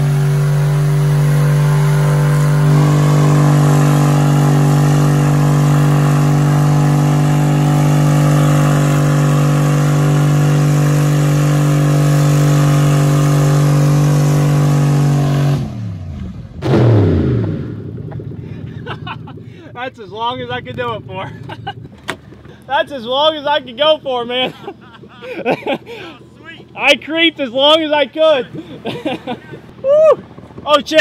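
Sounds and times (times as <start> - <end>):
engine at high revs: 0.0 - 19.6.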